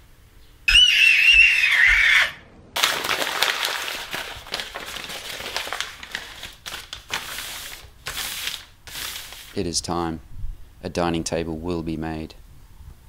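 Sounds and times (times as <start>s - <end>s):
toddler shrieking: 0.7s - 2.4s
paper crinkling: 2.8s - 9.6s.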